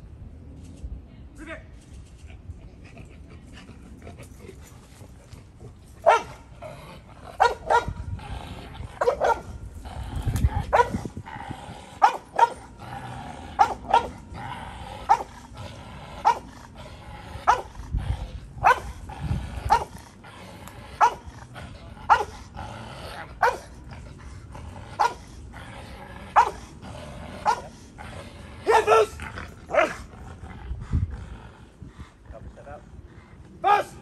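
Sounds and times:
dog barking: 0:06.0 - 0:06.4, 0:07.4 - 0:07.9, 0:09.0 - 0:09.4, 0:12.0 - 0:12.6, 0:13.6 - 0:14.1, 0:18.6 - 0:18.9, 0:21.0 - 0:21.2, 0:22.1 - 0:22.3, 0:23.4 - 0:23.6, 0:28.7 - 0:29.1.

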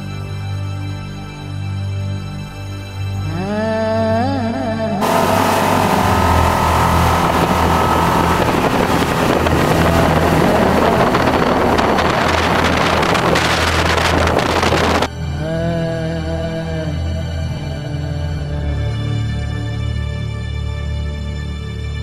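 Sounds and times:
motorboat engine running: 0:05.0 - 0:15.1
wind buffeting microphone: 0:05.0 - 0:15.1.

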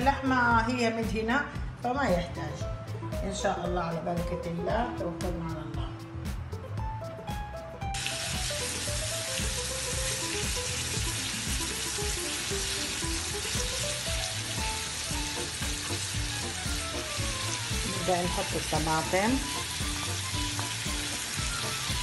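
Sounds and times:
background music with beat: 0:00.0 - 0:22.0
meat sizzling in a pan: 0:08.0 - 0:22.0.

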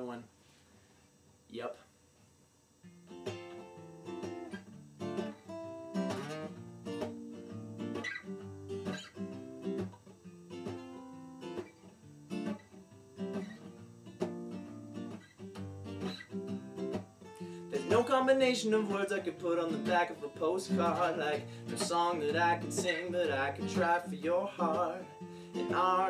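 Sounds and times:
acoustic guitar strumming: 0:02.8 - 0:26.0.

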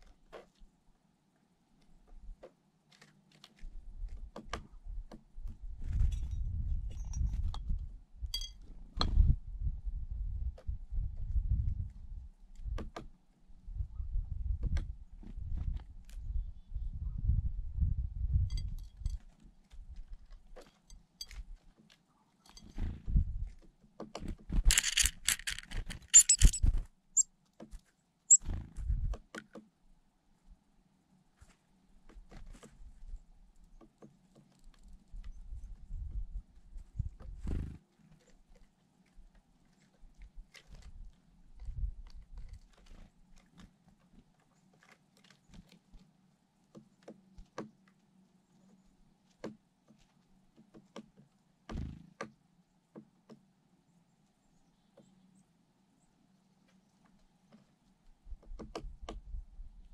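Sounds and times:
wind buffeting microphone: 0:05.6 - 0:08.4, 0:09.0 - 0:12.3, 0:13.7 - 0:18.8
high chirps: 0:26.1 - 0:26.6.

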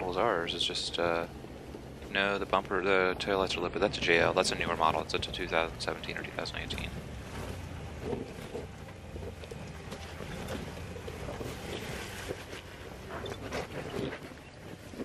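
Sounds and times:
car engine running low: 0:00.0 - 0:15.0
wind buffeting microphone: 0:00.0 - 0:15.0.

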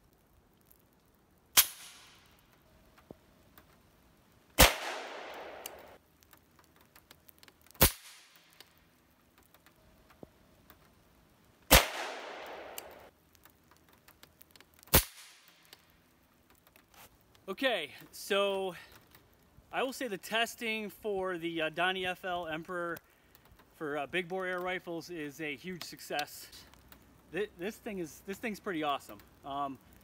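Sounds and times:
rain ticking on a table: 0:00.0 - 0:30.0
suppressed air rifle cracks: 0:01.5 - 0:02.4, 0:04.6 - 0:08.8, 0:11.7 - 0:13.1, 0:13.8 - 0:15.9.

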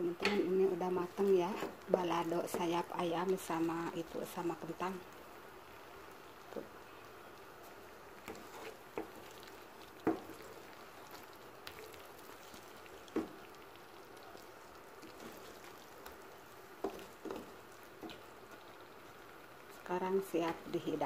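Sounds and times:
faint steady hiss: 0:00.0 - 0:21.0
spatula knocking and scraping a pan: 0:01.4 - 0:02.9, 0:08.2 - 0:09.2, 0:10.0 - 0:10.4, 0:13.1 - 0:13.4, 0:16.8 - 0:18.2.

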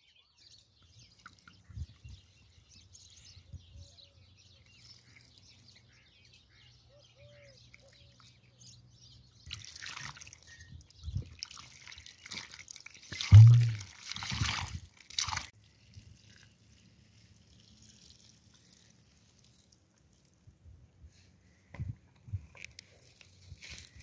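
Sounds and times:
birds chirping: 0:00.0 - 0:11.4
water splashing over potatoes: 0:09.4 - 0:20.5.

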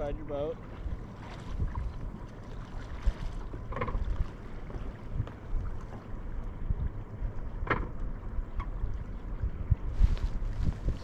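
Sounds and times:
light water sounds: 0:00.0 - 0:11.0
wind rumbling on microphone: 0:00.0 - 0:11.0
short splash: 0:01.1 - 0:05.0.

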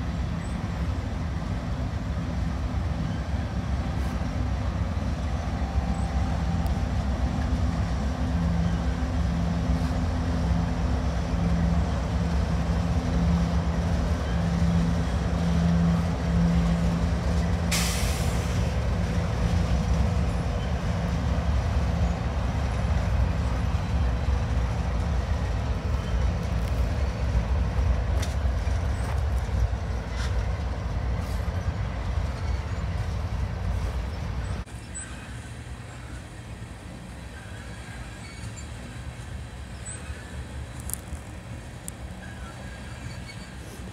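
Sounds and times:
freight train rumbling past: 0:00.0 - 0:43.9
sharp hiss: 0:17.7 - 0:18.8.

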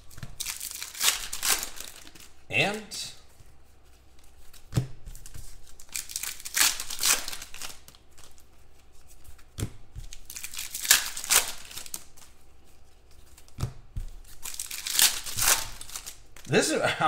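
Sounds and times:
wrappers crinkling and tearing: 0:00.0 - 0:02.4, 0:04.0 - 0:09.5, 0:10.1 - 0:13.6, 0:14.2 - 0:16.5.

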